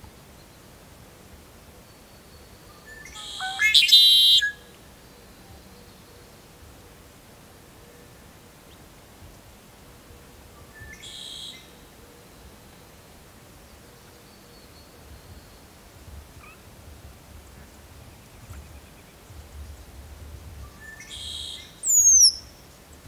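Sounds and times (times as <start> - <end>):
faint short bird calls: 2.8 - 4.7
blackbird harsh buzzy call: 3.1 - 4.6.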